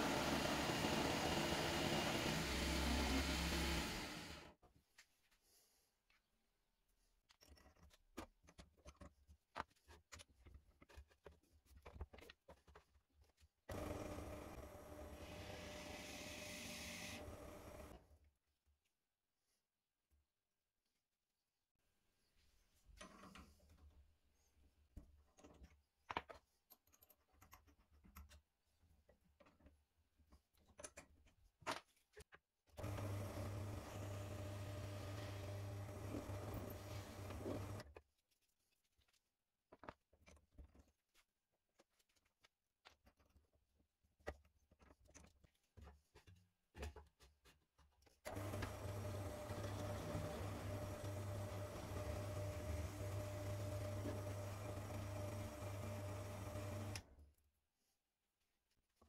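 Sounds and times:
drill press motor humming: 0.0 - 4.5, 13.7 - 18.0, 32.8 - 37.8, 48.3 - 57.0.

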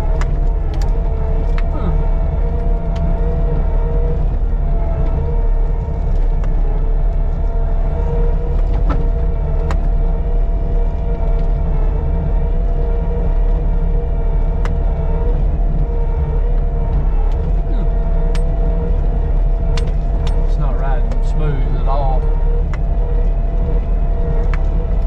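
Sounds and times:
low engine rumble: 0.0 - 25.0
steady whine: 0.0 - 25.0.

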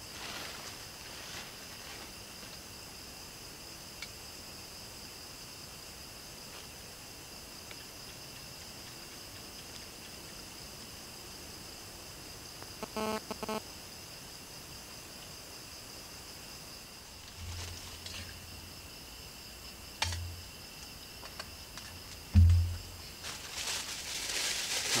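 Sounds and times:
crickets chirping: 0.0 - 25.0
low thumps: 22.3 - 23.1.

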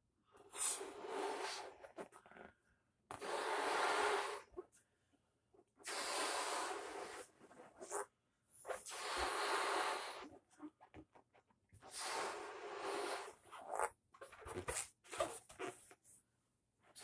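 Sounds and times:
breaths puffed into balloon: 0.5 - 2.3, 5.8 - 8.1, 8.7 - 10.5, 11.8 - 13.8.

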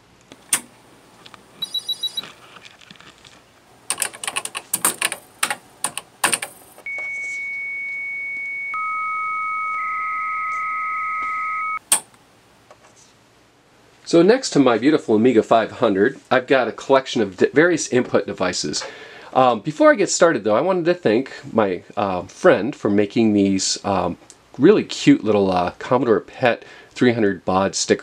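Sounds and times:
modem carrier tones: 1.6 - 2.4, 6.8 - 11.9
typing on computer keyboard: 3.9 - 6.6.

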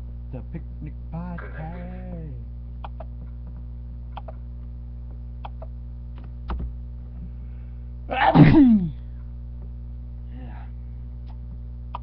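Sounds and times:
steady electrical hum: 0.0 - 12.0
man sneezing loudly: 8.1 - 9.0.

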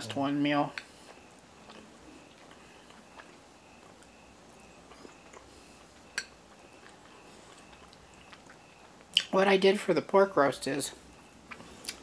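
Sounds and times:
chewing food: 0.0 - 9.4, 10.9 - 12.0
wet mouth clicks: 7.8 - 9.4, 11.5 - 12.0.

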